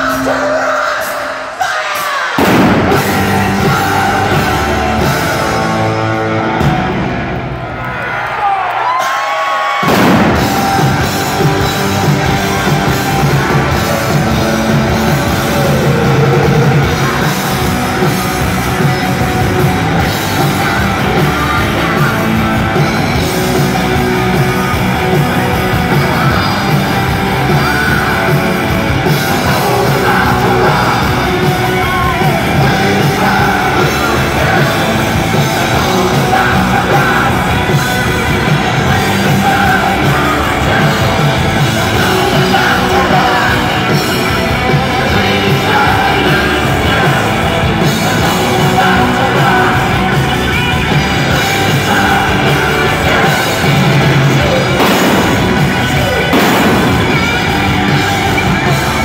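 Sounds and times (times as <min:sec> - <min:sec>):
man singing high strained vocal: 0:00.0 - 0:05.9, 0:29.1 - 0:37.9, 0:38.7 - 0:50.6, 0:51.3 - 0:55.0
hard rock band playing live: 0:00.0 - 0:07.9, 0:08.8 - 0:59.0.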